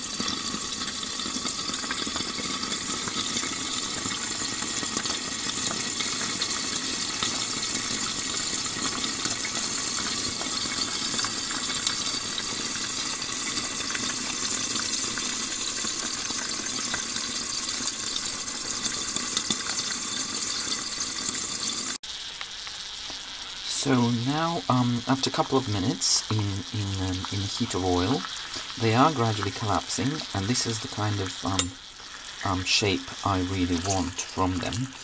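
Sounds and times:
oil crackling and popping: 0.0s - 35.0s
peppers sizzling in oil: 0.0s - 35.0s.

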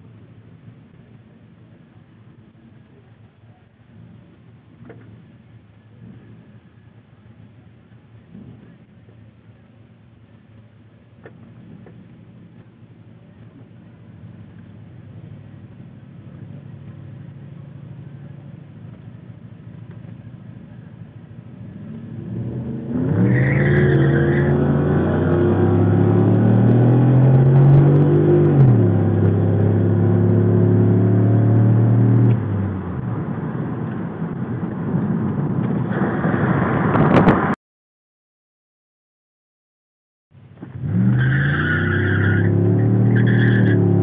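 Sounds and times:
car engine accelerating: 11.2s - 37.6s, 40.5s - 44.0s.

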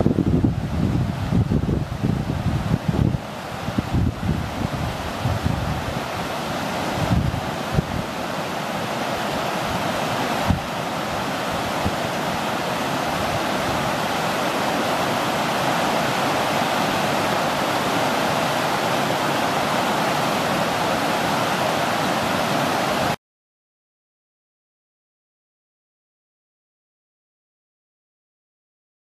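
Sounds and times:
stream rushing over rocks: 0.0s - 23.2s.

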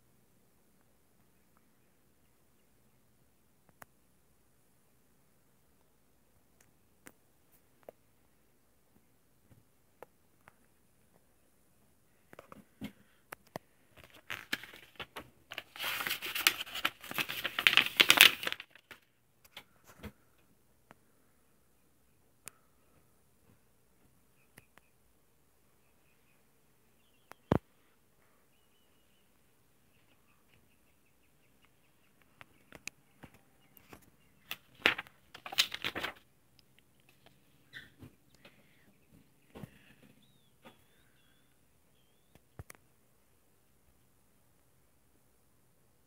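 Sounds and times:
soft clicks: 3.6s - 4.0s, 24.5s - 24.9s
crinkly paper rustle: 13.9s - 20.2s, 33.8s - 36.3s
comic book pages turning: 14.0s - 19.0s, 33.9s - 36.2s.

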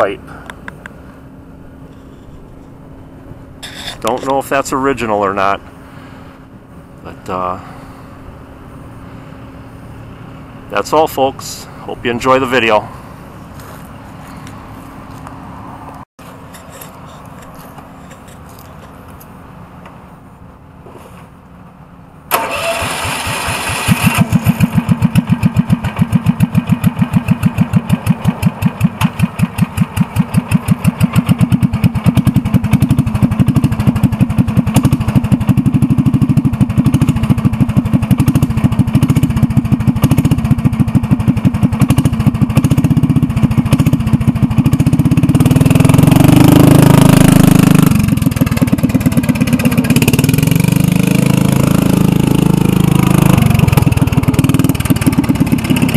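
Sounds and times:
engine running with exhaust pulses: 0.1s - 55.9s
engine cranking: 22.3s - 55.9s
engine revving: 22.3s - 55.9s.

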